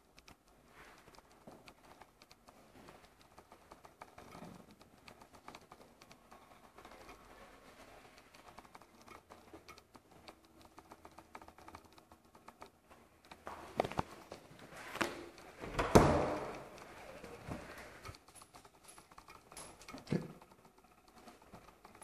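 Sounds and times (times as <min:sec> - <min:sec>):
light ticks and taps: 0:00.0 - 0:22.0
knocks: 0:15.7 - 0:16.7.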